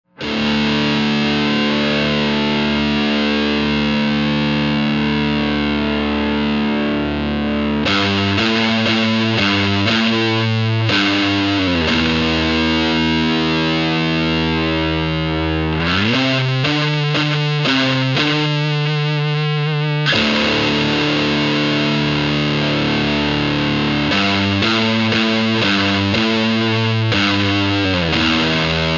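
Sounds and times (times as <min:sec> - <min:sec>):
distorted electric guitar chord: 0:00.1 - 0:28.9.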